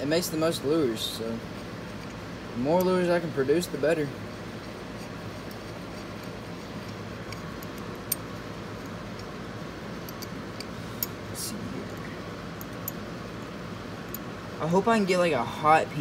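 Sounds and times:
steady hum: 0.0s - 16.0s
metal clamp clicking: 10.0s - 11.2s.

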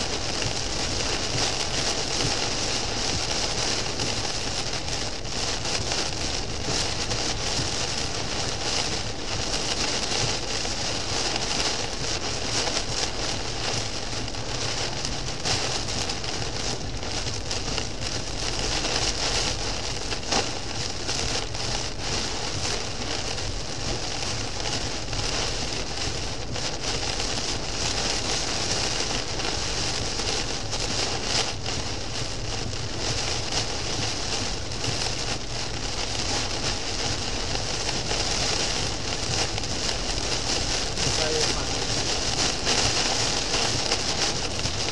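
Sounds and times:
heavy rain on car windscreen: 0.0s - 44.9s.

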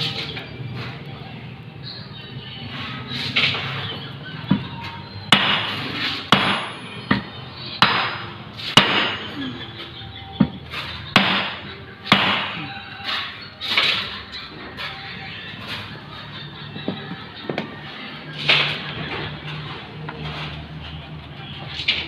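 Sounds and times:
hammer striking metal: 5.3s - 9.4s, 11.2s - 13.2s.

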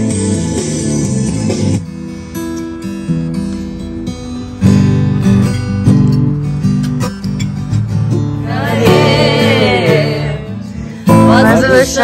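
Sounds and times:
acoustic guitar strumming: 0.0s - 12.0s
person singing: 8.4s - 12.0s.

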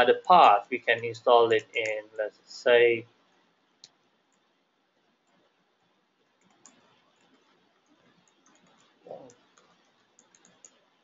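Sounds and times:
computer keyboard keystrokes: 8.2s - 10.8s.

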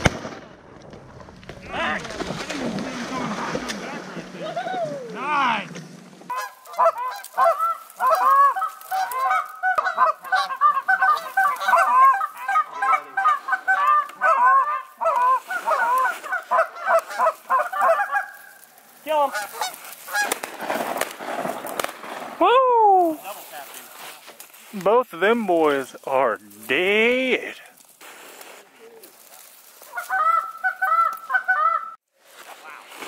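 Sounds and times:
geese honking and clucking: 6.2s - 20.5s, 29.2s - 32.0s.

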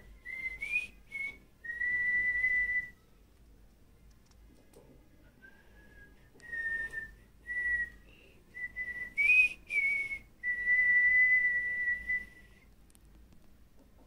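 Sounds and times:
person whistling: 0.2s - 3.0s, 5.4s - 8.0s, 8.6s - 12.7s.

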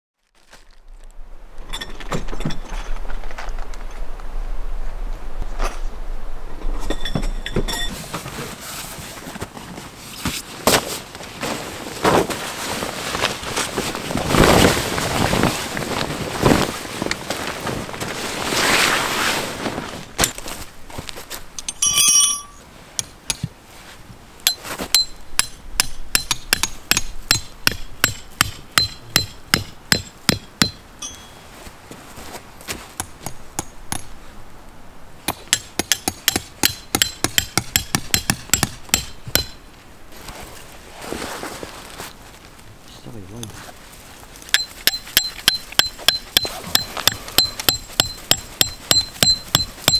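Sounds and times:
canvas and plastic sheet rustling: 8.0s - 21.5s, 40.1s - 44.5s
metal clink: 21.6s - 22.6s, 31.0s - 31.4s
tent pegs being hammered: 21.7s - 23.5s, 24.4s - 31.4s, 33.0s - 34.2s, 35.3s - 39.6s, 44.5s - 49.9s.

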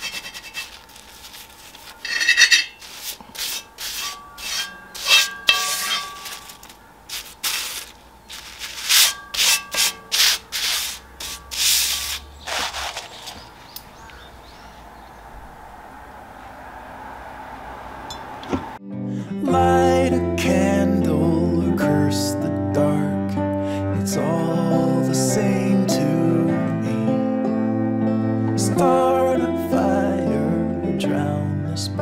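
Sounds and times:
paper towel rubbing on iron griddle: 0.0s - 13.6s.

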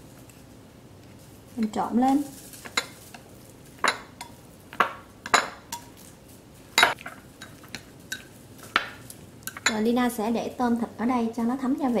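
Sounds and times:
chopsticks clinking against bowls: 9.5s - 9.8s.

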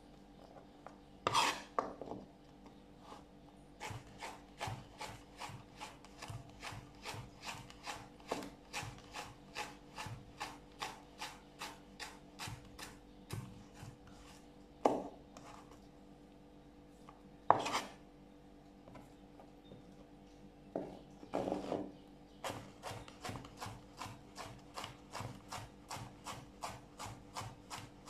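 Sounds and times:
knife cutting on cutting board: 1.3s - 1.7s, 17.5s - 18.0s.

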